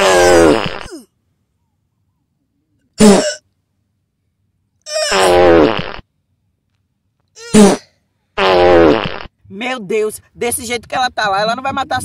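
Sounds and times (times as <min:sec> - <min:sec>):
fart sounds: 0:00.0 - 0:01.1, 0:03.0 - 0:03.4, 0:04.9 - 0:06.0, 0:07.4 - 0:09.3.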